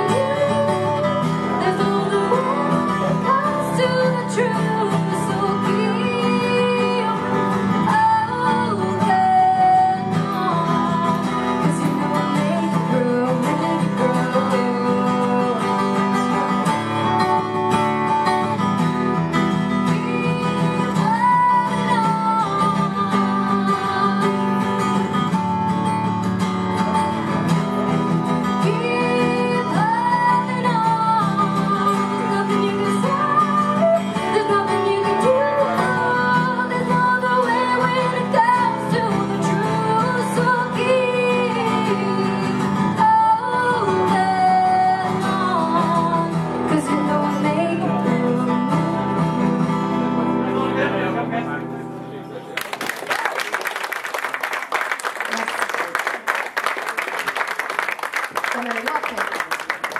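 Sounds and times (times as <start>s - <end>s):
woman singing: 0.0s - 17.2s, 19.6s - 25.2s, 28.4s - 50.4s
acoustic guitar chords: 0.0s - 52.6s.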